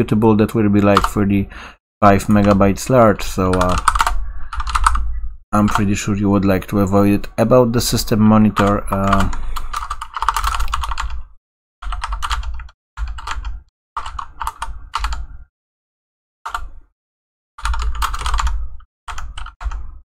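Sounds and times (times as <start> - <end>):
typing on computer keyboard: 3.4 - 5.0, 5.6 - 5.9, 8.6 - 11.2, 11.8 - 15.2, 17.6 - 19.9.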